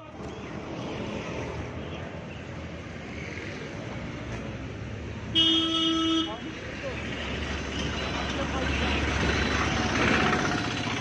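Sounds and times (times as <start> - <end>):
street traffic hum: 0.0 - 11.0
vehicle horn toot: 5.4 - 6.3.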